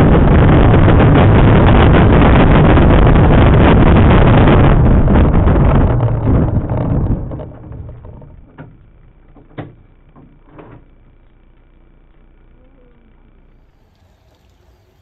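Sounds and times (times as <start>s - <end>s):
aircraft engine running down: 0.0s - 9.8s
faint steady hum: 0.0s - 15.0s.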